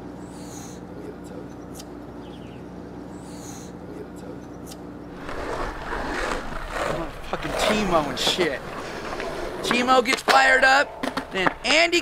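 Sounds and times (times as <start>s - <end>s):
steady low hum: 0.0s - 12.0s
skateboard wheels rolling on concrete: 5.1s - 12.0s.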